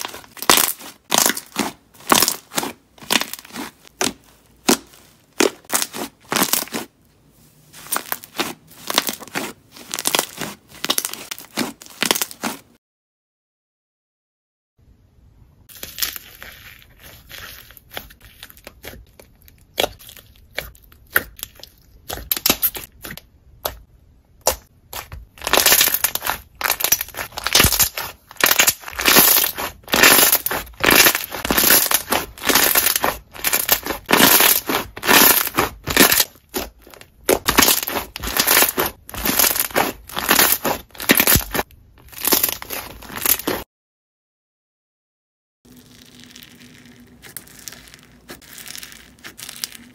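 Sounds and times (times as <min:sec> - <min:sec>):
slime crackling and popping: 0:00.0 - 0:06.9, 0:07.8 - 0:12.6, 0:17.3 - 0:23.8, 0:24.4 - 0:43.6.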